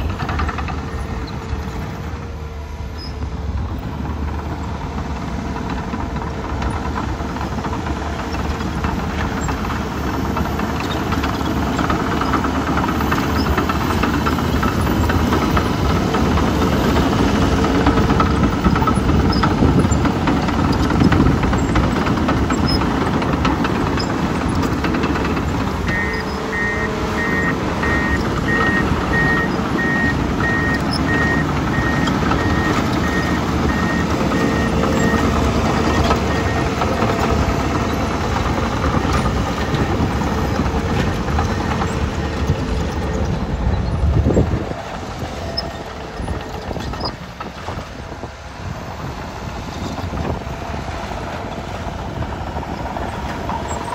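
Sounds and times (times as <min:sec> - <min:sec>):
diesel engine running: 0:00.0 - 0:53.9
backup alarm beeping: 0:25.9 - 0:37.1.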